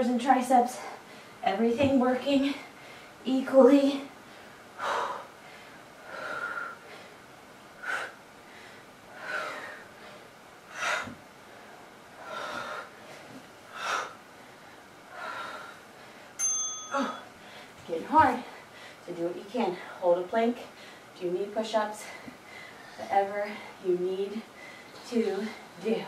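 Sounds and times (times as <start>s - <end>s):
woman breathing hard: 4.2s - 17.8s, 18.5s - 19.0s, 22.0s - 23.8s, 24.5s - 25.8s.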